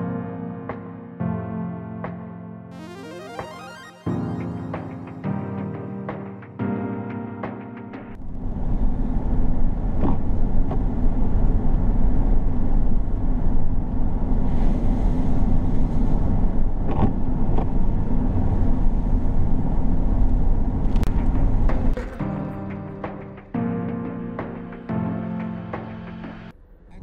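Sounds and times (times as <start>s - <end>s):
vehicle driving on wet road: 8.2s - 21.9s.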